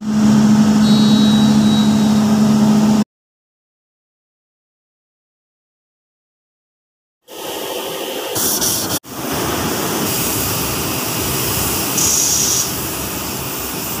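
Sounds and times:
bright hiss: 7.3s - 14.0s.

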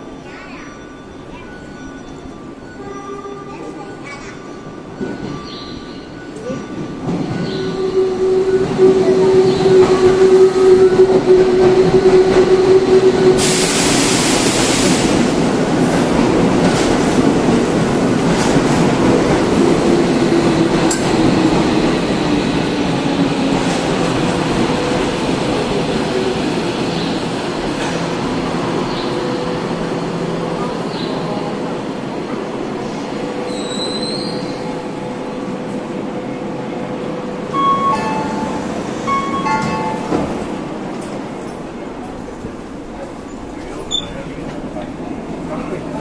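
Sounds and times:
subway train rushing in: 0.0s - 46.0s
air brake hiss: 13.4s - 15.2s.

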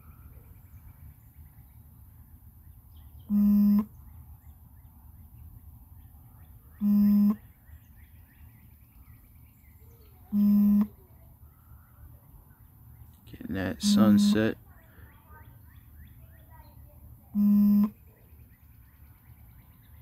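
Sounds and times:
birds chirping faintly: 0.0s - 20.0s
buzzy warning beeps: 3.3s - 3.9s, 6.8s - 7.4s, 10.3s - 11.0s, 13.6s - 14.6s, 17.3s - 18.0s.

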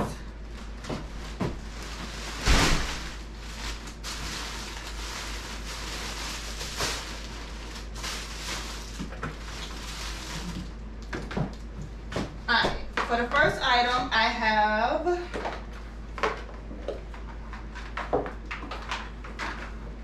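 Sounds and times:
plastic bags rustling: 0.1s - 11.8s.

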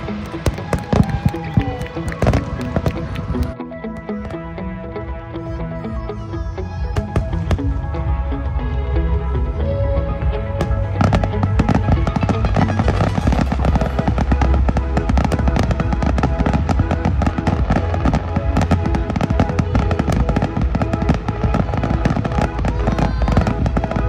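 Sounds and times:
fireworks bangs and crackles: 0.0s - 3.6s, 6.8s - 7.9s, 10.6s - 24.0s
music playing: 0.0s - 24.0s.

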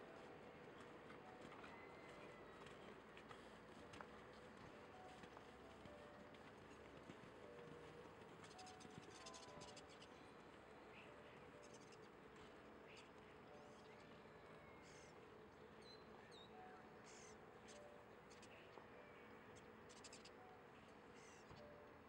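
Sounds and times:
distant bird chirps: 8.4s - 12.2s, 12.8s - 21.8s.

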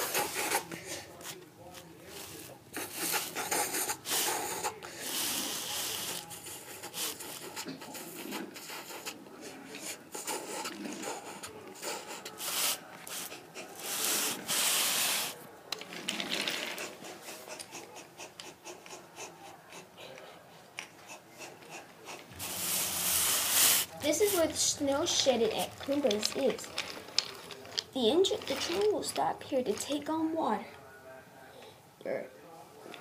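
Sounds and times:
wooden toy train rolling: 13.8s - 18.5s, 22.6s - 30.1s.

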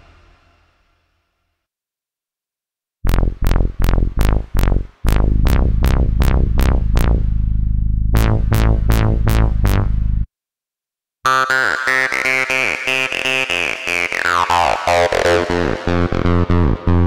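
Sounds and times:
sustained synth bass: 3.0s - 10.3s, 14.5s - 17.0s
synthesizer plucked arpeggio: 3.1s - 10.3s.

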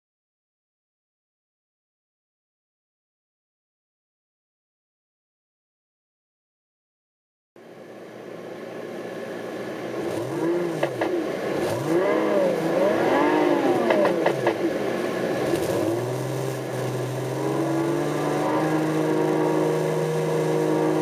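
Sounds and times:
simulated engine through speakers: 7.6s - 21.0s.

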